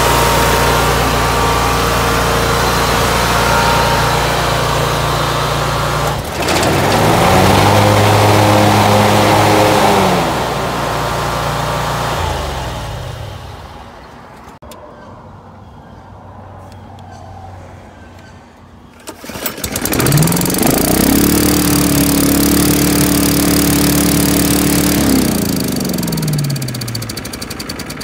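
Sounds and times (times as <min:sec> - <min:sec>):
low hum: 0:00.0 - 0:14.1
small engine revving: 0:00.0 - 0:14.1, 0:19.1 - 0:28.0.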